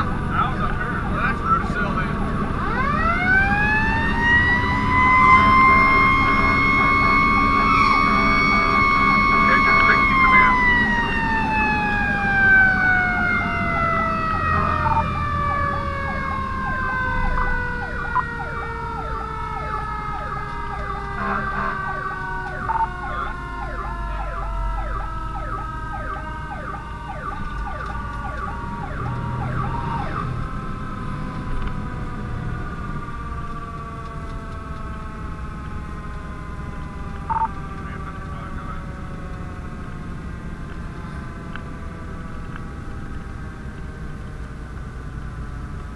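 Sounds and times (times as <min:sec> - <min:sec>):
truck engine and road rumble: 0:00.0 - 0:45.9
siren warble: 0:00.9 - 0:30.9, 0:36.3 - 0:38.0
mechanical siren winding down: 0:01.0 - 0:39.7.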